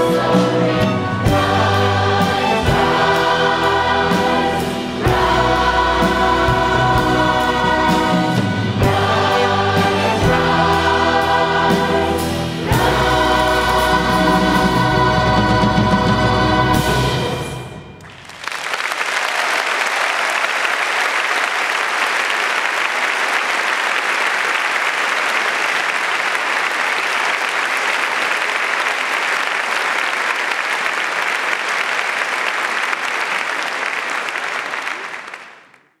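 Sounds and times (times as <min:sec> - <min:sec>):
audience applauding: 0:18.0 - 0:36.0.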